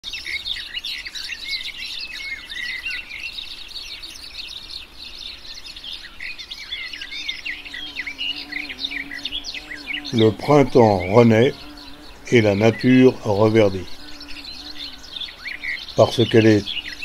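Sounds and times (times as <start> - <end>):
songbirds singing and chirping: 0.0 - 17.0.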